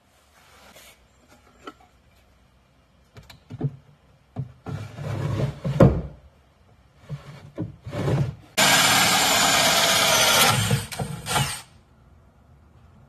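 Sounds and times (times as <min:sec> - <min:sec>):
drawer sliding: 0:04.7 - 0:06.2, 0:07.0 - 0:08.4
cordless drill cutting through wood: 0:08.6 - 0:11.7.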